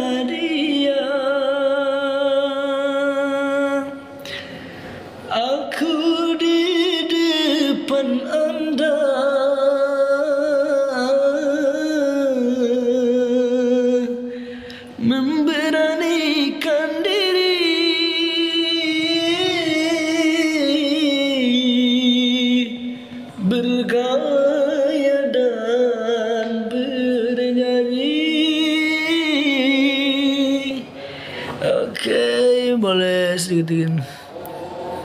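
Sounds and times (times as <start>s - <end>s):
man singing unaccompanied: 0.0s - 4.2s, 5.3s - 14.3s, 15.0s - 30.9s, 31.6s - 34.1s.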